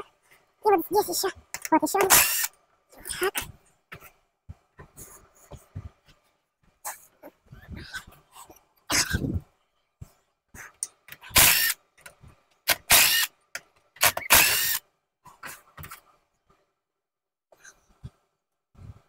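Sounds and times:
cordless power tool bursts: 2.1 - 2.5, 11.3 - 11.8, 12.7 - 13.3, 14.0 - 14.8.

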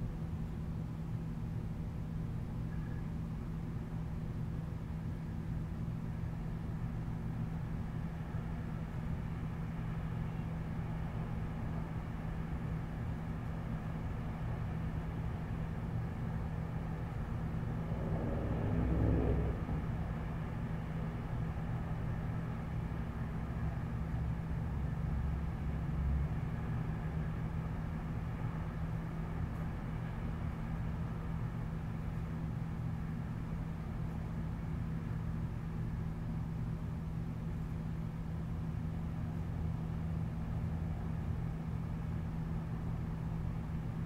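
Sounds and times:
city ambience hum: 0.0 - 44.0
vehicle passing: 17.1 - 21.1.

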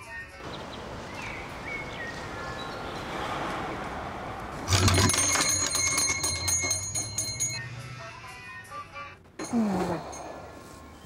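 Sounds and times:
shop door bell jangling: 4.7 - 8.8, 9.4 - 10.6.

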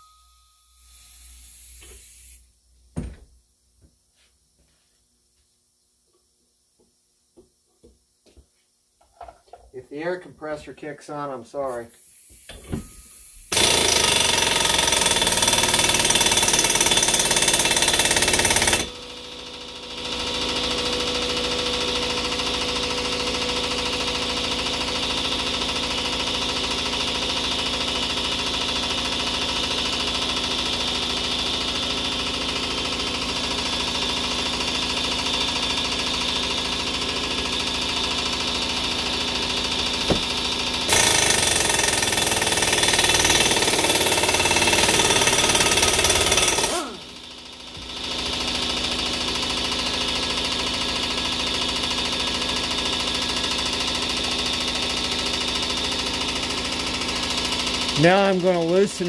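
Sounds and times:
air compressor running: 11.6 - 59.0
impact wrench hammering: 12.5 - 19.1, 38.2 - 49.1.

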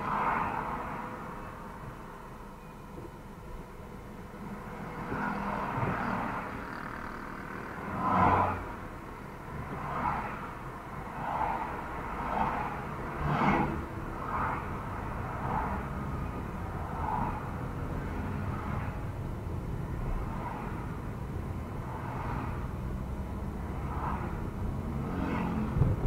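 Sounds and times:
car engine and road rumble: 0.0 - 26.0.

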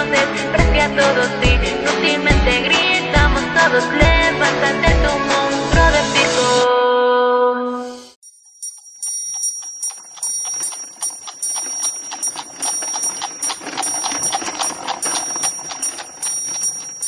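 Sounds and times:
high ringing tone: 8.2 - 17.0
rapid even ticking: 8.2 - 17.0.

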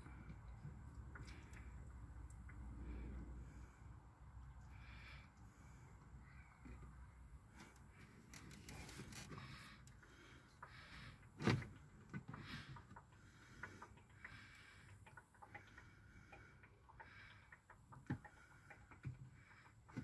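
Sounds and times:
oil pouring into a funnel: 0.0 - 5.8, 11.7 - 20.0.

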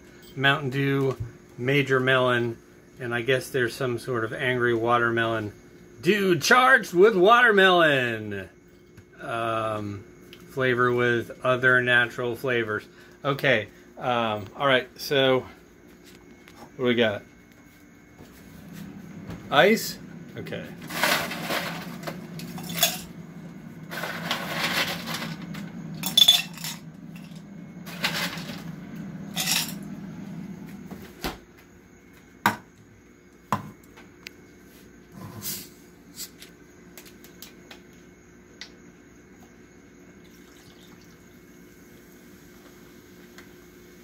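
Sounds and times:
soda pouring over ice: 40.2 - 41.3.

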